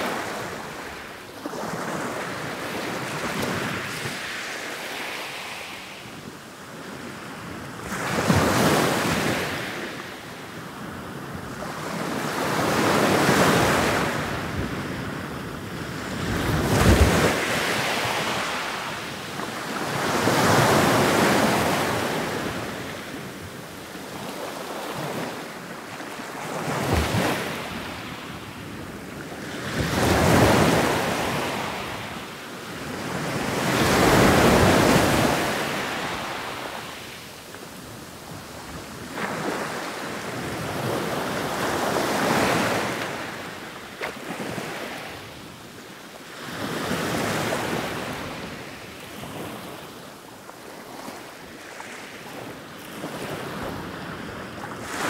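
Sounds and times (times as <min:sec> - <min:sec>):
ocean surf breaking: 0:32.9 - 0:37.2.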